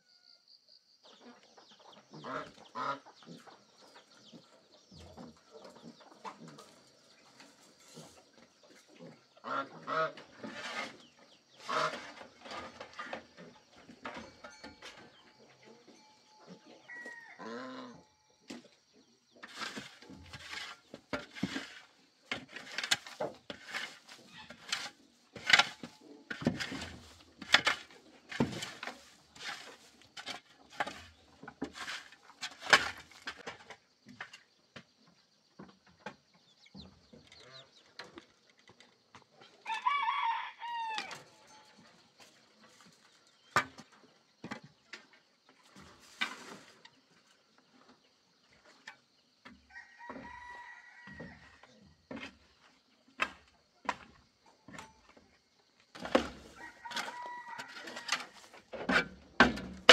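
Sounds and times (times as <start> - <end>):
chickens clucking: 1.0 - 39.9
metal shovel scraping dirt floor: 2.2 - 16.6, 19.3 - 34.6, 45.6 - 49.1, 55.9 - 59.9.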